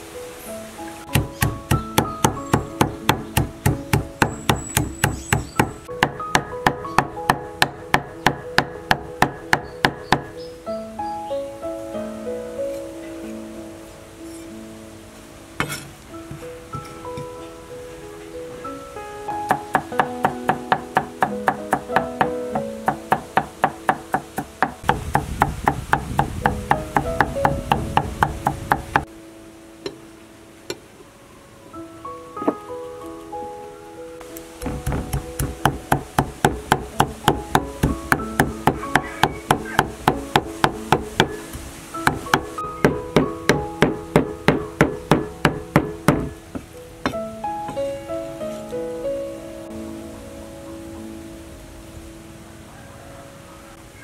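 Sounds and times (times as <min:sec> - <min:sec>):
background music: 0:00.0 - 0:54.0
cleaver chopping on wooden block: 0:01.1 - 0:10.3, 0:19.5 - 0:29.0, 0:34.6 - 0:46.4
knife chopping on cutting board: 0:34.6 - 0:36.9.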